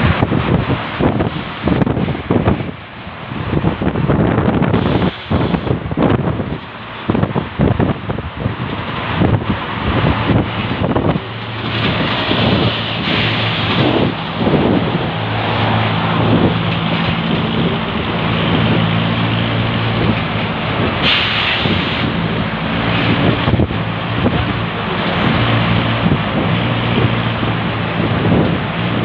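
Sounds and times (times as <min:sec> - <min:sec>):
bus engine humming: 0:00.0 - 0:29.0
road and wind noise: 0:00.0 - 0:29.0
burst of hiss: 0:04.8 - 0:05.7, 0:21.0 - 0:22.1.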